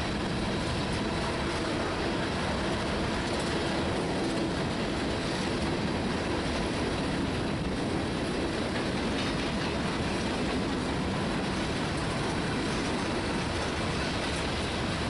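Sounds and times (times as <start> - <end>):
steel train wheels on rails: 0.0 - 15.0.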